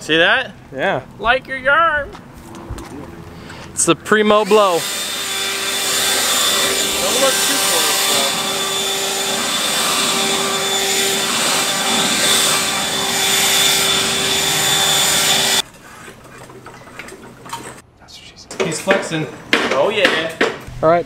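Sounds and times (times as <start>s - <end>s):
leaf blower running: 3.3s - 15.6s.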